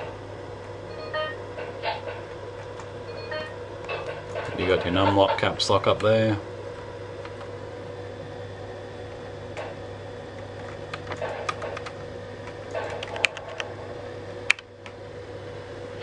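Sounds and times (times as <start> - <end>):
steady electrical hum: 0.0 - 16.0
keyboard keys clicking: 10.4 - 13.7.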